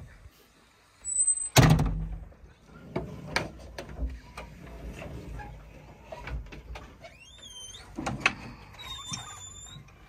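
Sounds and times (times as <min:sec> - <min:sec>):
short high squeak: 0:01.0 - 0:01.6, 0:08.8 - 0:09.9.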